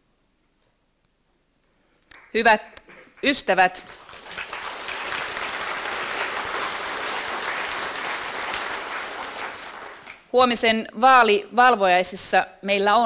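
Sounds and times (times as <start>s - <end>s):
audience applauding: 2.1s - 10.3s.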